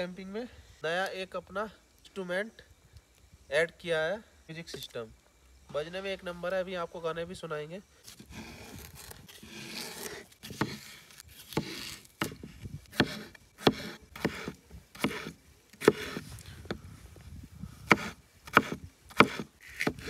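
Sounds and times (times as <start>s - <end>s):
knife scraping and rustling: 8.0s - 16.6s
knife chopping on wooden board: 9.5s - 10.9s, 11.5s - 16.2s, 17.9s - 20.0s.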